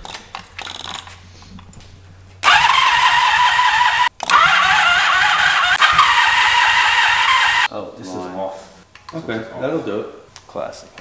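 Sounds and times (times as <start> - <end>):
motorcycle engine starting and running: 0.0 - 7.7.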